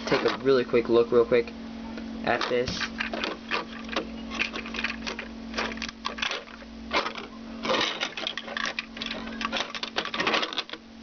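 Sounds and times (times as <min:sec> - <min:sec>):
plastic bricks clicking and rattling: 0:02.4 - 0:10.8.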